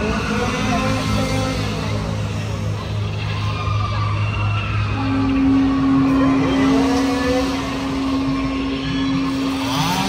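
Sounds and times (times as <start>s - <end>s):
chainsaw engine revving: 5.8s - 10.0s.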